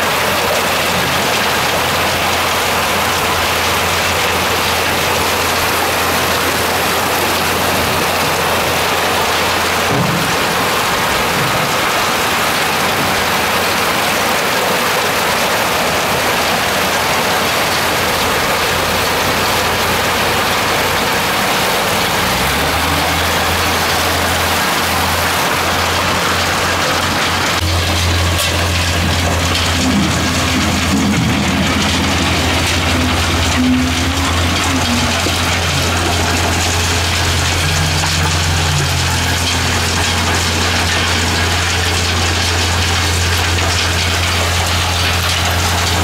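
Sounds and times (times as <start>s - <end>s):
machine engine running low: 0.0s - 46.0s
water and gravel rushing down sluice: 0.0s - 46.0s.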